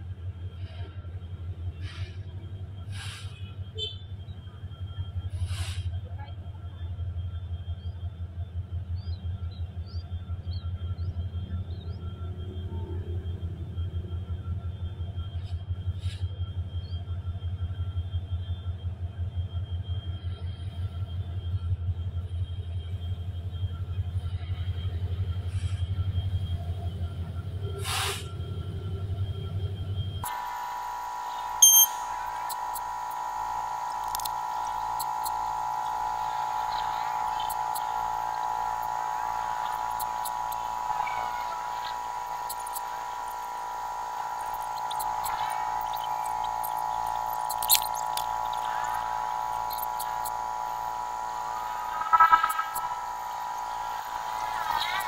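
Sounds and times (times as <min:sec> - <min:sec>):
diesel locomotive rumble: 0:00.0 - 0:32.5
short hisses: 0:27.8 - 0:28.3.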